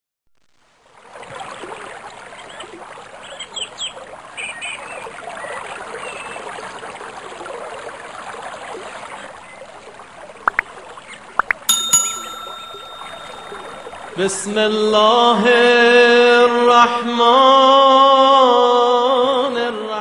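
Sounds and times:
high chirps: 11.4 - 14.4.

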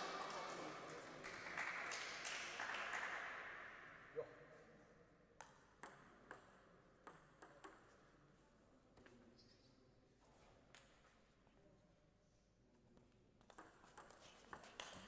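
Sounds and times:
table tennis ball bouncing: 5.4 - 7.9, 13.4 - 15.0.

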